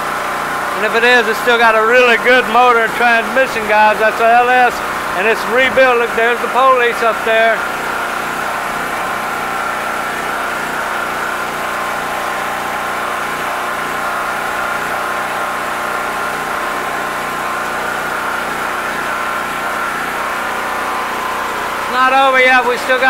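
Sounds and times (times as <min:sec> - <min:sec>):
engine drone with high whine: 0:00.0 - 0:23.0.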